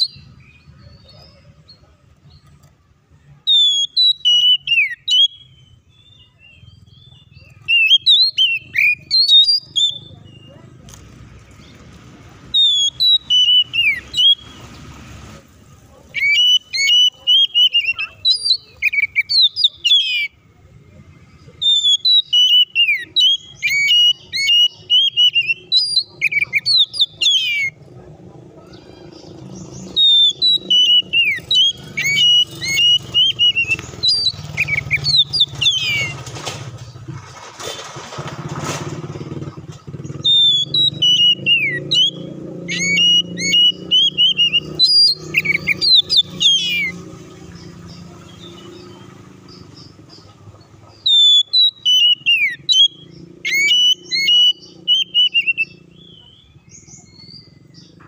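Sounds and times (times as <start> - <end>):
bird singing whistled phrases: 0.0 - 1.2, 3.4 - 10.5, 12.5 - 14.6, 16.2 - 20.4, 21.6 - 27.8, 28.7 - 36.1, 40.2 - 49.0, 50.9 - 58.0
low engine rumble: 4.9 - 58.0.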